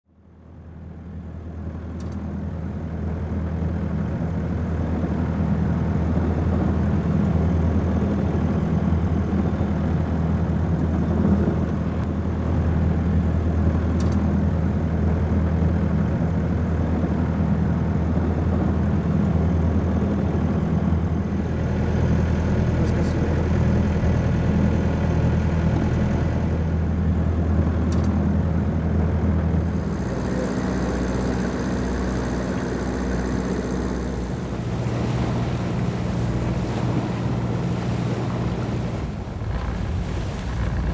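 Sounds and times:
boat diesel engine humming: 0:00.3 - 0:40.9
water rushing past hull: 0:29.6 - 0:40.9.

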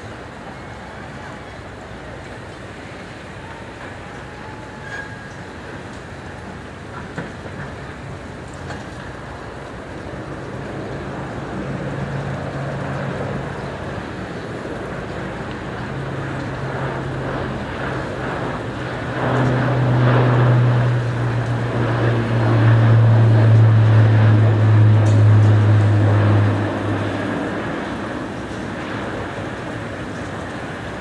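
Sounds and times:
turboprop aircraft flying overhead: 0:00.0 - 0:31.0.

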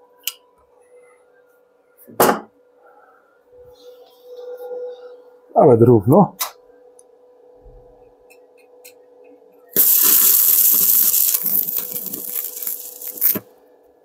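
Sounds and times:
welding arc hissing and popping: 0:09.8 - 0:13.5.

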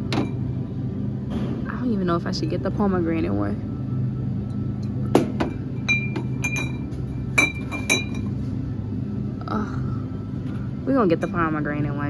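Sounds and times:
steady low hum: 0:00.0 - 0:12.0
glass bottles clinking: 0:05.2 - 0:08.4.

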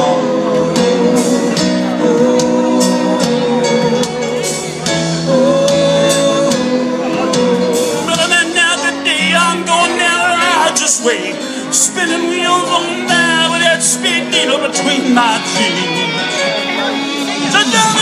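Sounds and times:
live rock band: 0:00.0 - 0:18.0
person singing: 0:00.0 - 0:18.0.

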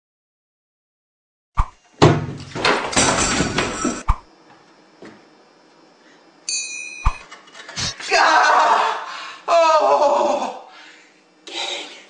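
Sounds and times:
cabinet door banging shut: 0:02.0 - 0:04.0
high electronic ringing tone: 0:06.5 - 0:07.2.

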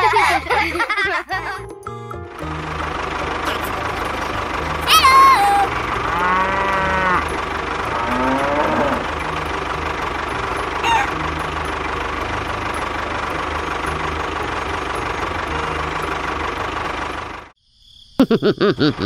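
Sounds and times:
tractor engine chugging: 0:00.0 - 0:17.6
falling bird-like call: 0:10.8 - 0:11.2.

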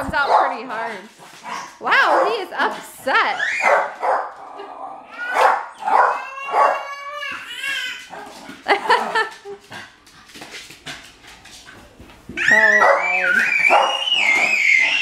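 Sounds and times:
dog barking: 0:00.2 - 0:00.6, 0:03.6 - 0:04.3, 0:05.3 - 0:06.8, 0:12.8 - 0:13.1, 0:13.7 - 0:14.0
dog whining: 0:05.1 - 0:07.4, 0:12.4 - 0:15.0.

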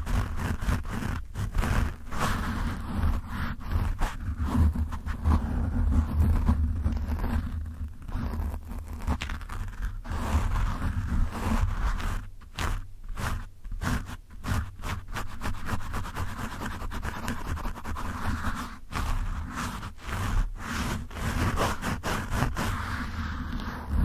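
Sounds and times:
fingers scratching microphone windscreen: 0:00.0 - 0:24.0.

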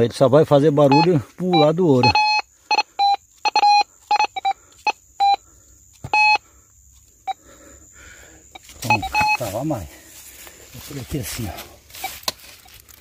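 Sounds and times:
metal detector beeping: 0:00.8 - 0:06.4, 0:08.5 - 0:10.0, 0:11.2 - 0:12.8.

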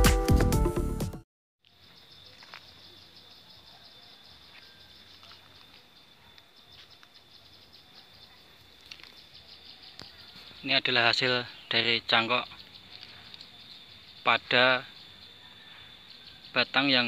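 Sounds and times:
electronic intro music: 0:00.0 - 0:01.2
high pulsing insect trill: 0:01.6 - 0:17.0.

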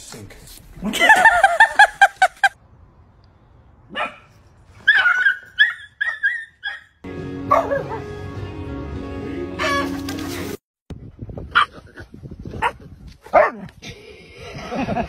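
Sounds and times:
small dog yipping: 0:04.8 - 0:07.0
music: 0:07.0 - 0:10.6.

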